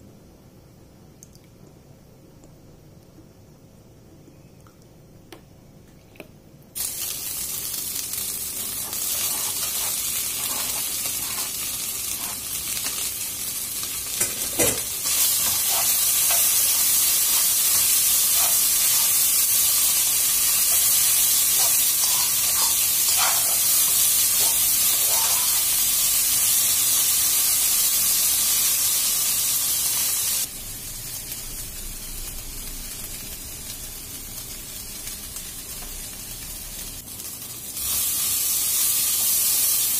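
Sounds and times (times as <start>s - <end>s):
meat and onion sizzling: 6.8s - 39.9s
utensil scraping pan: 8.8s - 12.5s, 14.2s - 19.2s, 20.6s - 25.7s.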